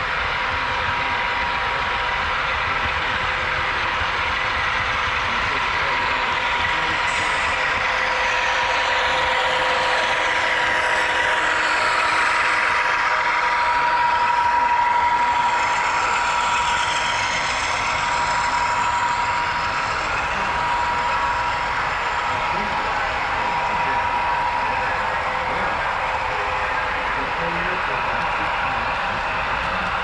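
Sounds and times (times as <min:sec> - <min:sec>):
model locomotive engine sound: 0:00.0 - 0:30.0.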